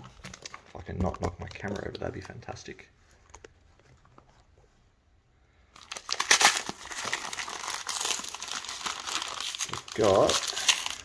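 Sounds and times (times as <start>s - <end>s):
packing paper crinkling and tearing: 0.0s - 2.4s, 5.8s - 11.0s.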